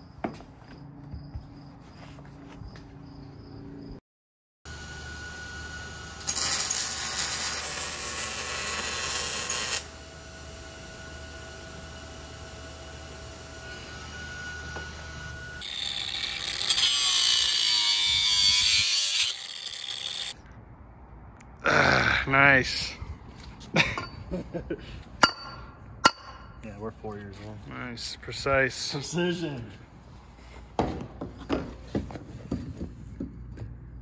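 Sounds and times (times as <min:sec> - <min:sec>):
power tool working metal: 0:04.7 - 0:20.4.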